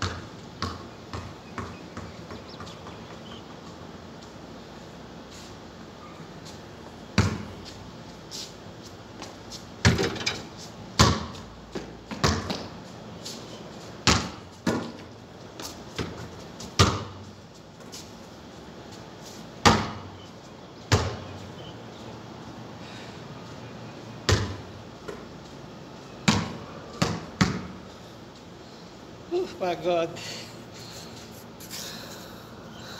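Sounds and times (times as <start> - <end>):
basketball bouncing on concrete: 0.0 - 3.8, 7.2 - 7.7, 9.2 - 10.4, 11.0 - 12.8, 14.0 - 17.2, 19.6 - 20.2, 20.9 - 21.3, 24.3 - 25.3, 26.2 - 27.8.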